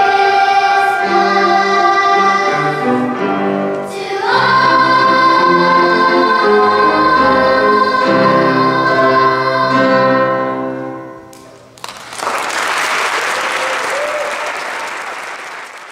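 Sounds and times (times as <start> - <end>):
children's choir singing: 0.0 - 11.3
audience applause: 11.8 - 15.9.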